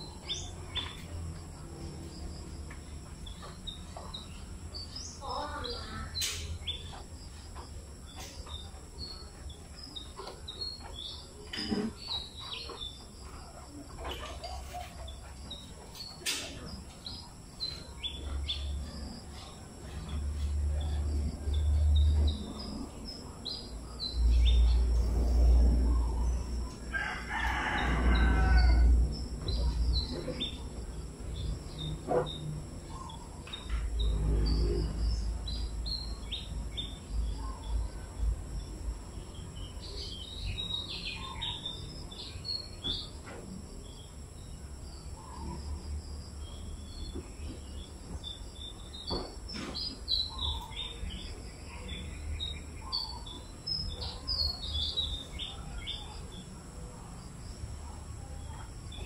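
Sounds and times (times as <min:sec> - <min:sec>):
small birds chirping: 0:00.0 - 0:59.0
rooster crowing: 0:26.8 - 0:29.2.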